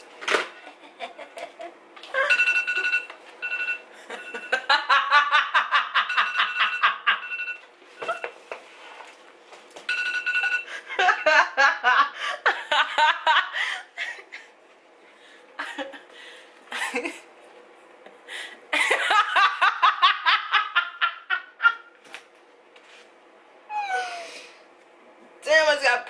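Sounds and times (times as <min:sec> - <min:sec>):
woman laughing hard: 0:00.6 - 0:02.4, 0:04.0 - 0:07.2, 0:10.8 - 0:14.5, 0:15.6 - 0:16.1, 0:16.7 - 0:17.3, 0:18.7 - 0:21.9
breaths: 0:13.6 - 0:13.9, 0:15.1 - 0:15.5, 0:16.1 - 0:16.6, 0:18.3 - 0:18.6.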